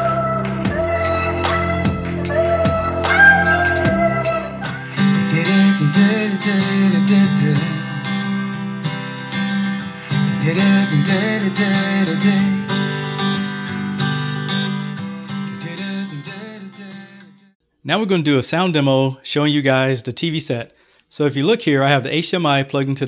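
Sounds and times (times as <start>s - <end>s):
song with strummed acoustic guitar: 0.8s - 17.5s.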